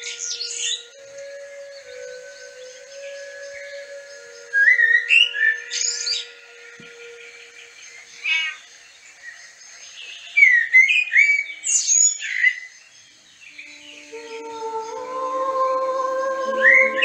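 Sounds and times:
music with sustained notes: 0.0s - 9.8s, 13.4s - 17.0s
birds chirping: 0.0s - 17.0s.

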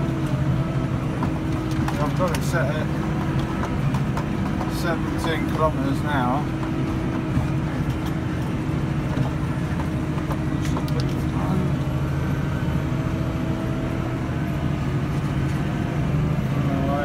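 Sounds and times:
tractor and baler droning: 0.0s - 17.0s.

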